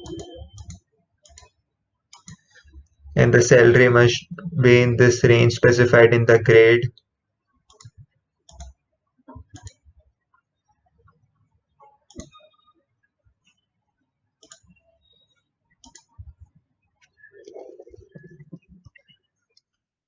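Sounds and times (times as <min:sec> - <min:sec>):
mouse clicks: 0:00.0 - 0:01.6, 0:12.1 - 0:12.5, 0:14.4 - 0:14.8, 0:15.8 - 0:16.2.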